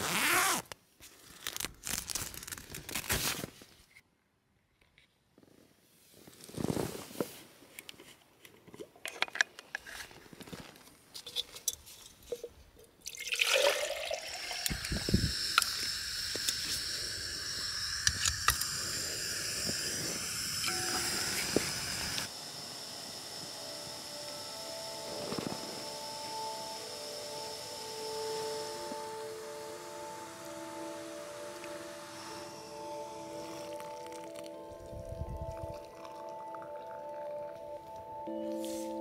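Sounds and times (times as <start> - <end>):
gas burner hissing: 14.2 - 34.0.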